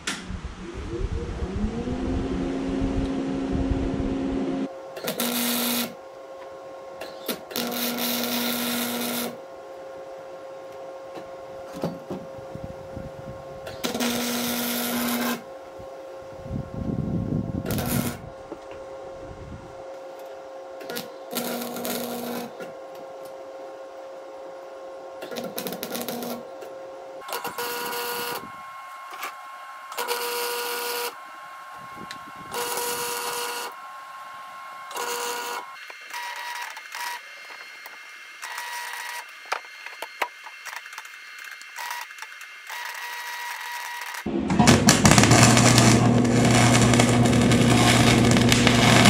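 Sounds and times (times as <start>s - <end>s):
welding arc crackling: 2.2s - 6.0s, 7.2s - 9.4s, 13.6s - 15.5s, 17.6s - 18.3s, 20.8s - 22.6s, 25.3s - 26.4s, 27.2s - 28.5s, 29.9s - 31.2s, 32.0s - 33.8s, 34.9s - 36.1s, 44.2s - 49.0s.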